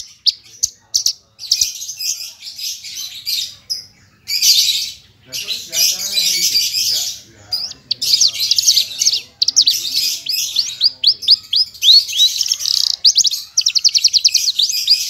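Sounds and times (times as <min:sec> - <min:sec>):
lark singing whistles and trills: 0:04.3 - 0:15.0.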